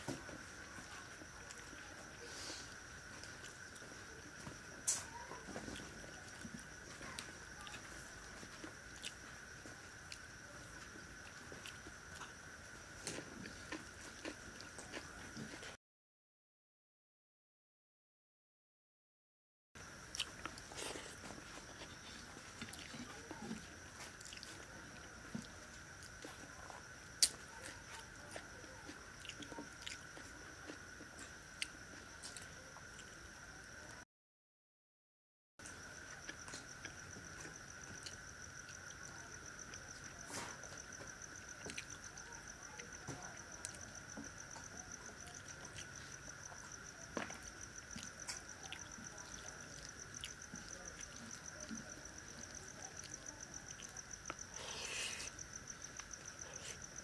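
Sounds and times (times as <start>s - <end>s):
cricket chirping: 0.0s - 15.8s, 19.8s - 34.0s, 35.6s - 57.0s
chewing and soft smacks: 0.8s - 12.4s, 13.0s - 15.8s, 20.1s - 33.2s, 35.6s - 57.0s
wet clicks of eating by hand: 27.2s - 27.8s.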